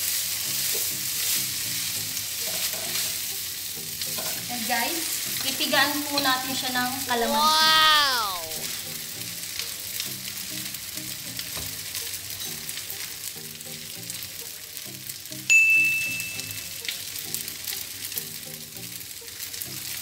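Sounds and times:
noodles sizzling in a frying pan: 0.0s - 20.0s
soft background music: 0.0s - 20.0s
bright ding: 15.5s - 16.6s.

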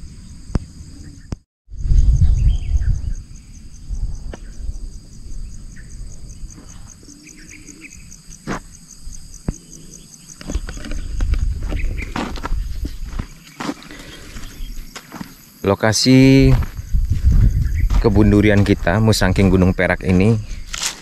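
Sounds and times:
insects chirring: 0.0s - 21.0s
footsteps on rough ground: 8.3s - 9.7s, 10.3s - 21.0s.

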